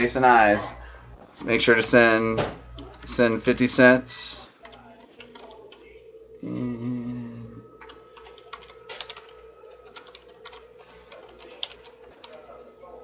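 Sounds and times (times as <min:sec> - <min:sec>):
typing on computer keyboard: 0:04.6 - 0:05.9, 0:07.8 - 0:12.4.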